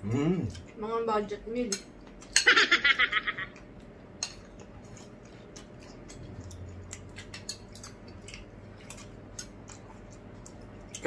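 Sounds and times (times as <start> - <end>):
cutlery clicking on plates: 3.6 - 5.0, 5.6 - 9.6.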